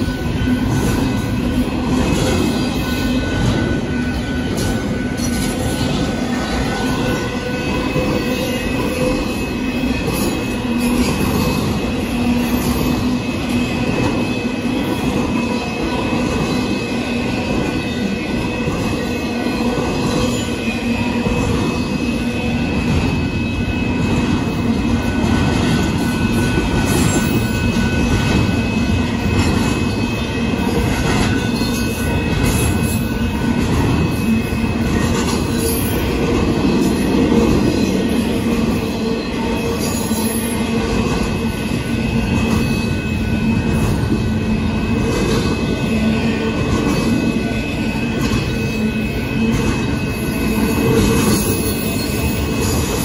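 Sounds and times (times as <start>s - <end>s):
train wheels rumbling on rails: 0.0s - 53.0s.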